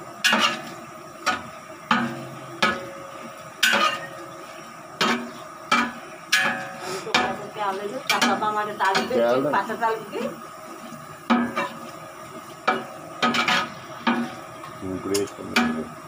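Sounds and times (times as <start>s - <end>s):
chillies frying in oil: 0.0s - 16.0s
metal ladle clanking in pot: 3.6s - 4.1s.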